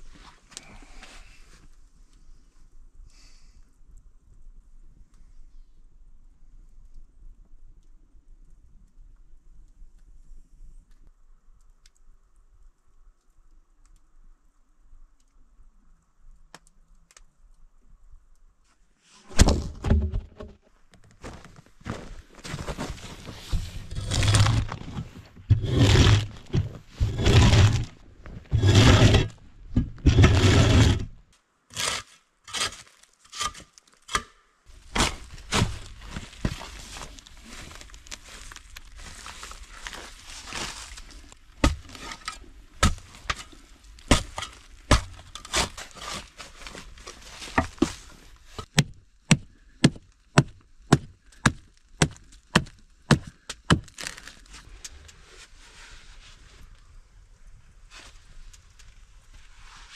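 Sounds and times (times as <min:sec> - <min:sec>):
wooden knocks and cracks: 0:19.3 - 0:21.6
rasp on wood: 0:28.6 - 0:29.3, 0:30.0 - 0:31.0.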